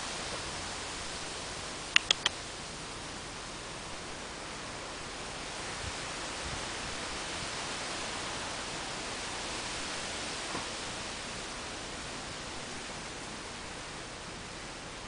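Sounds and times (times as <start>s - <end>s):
outdoor background hiss: 0.0s - 15.0s
faint click: 1.9s - 2.4s.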